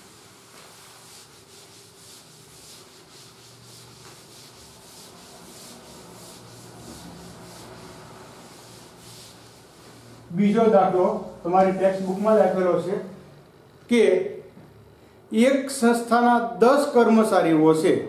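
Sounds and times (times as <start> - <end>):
cloth wiping chalkboard: 0.0 - 13.2.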